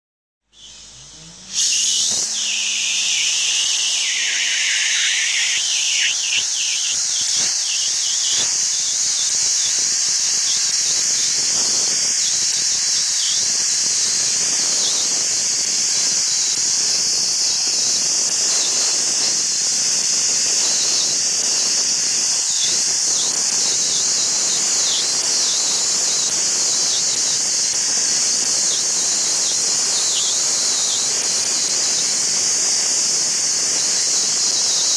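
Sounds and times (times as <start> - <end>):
blasting nozzle hissing: 0.6 - 14.3.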